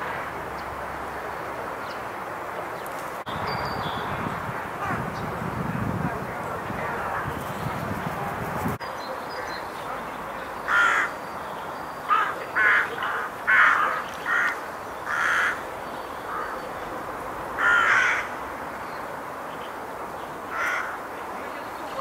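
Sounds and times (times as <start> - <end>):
rooks cawing: 10.6 - 11.2, 12.1 - 16.6, 17.6 - 18.4, 20.5 - 21.1.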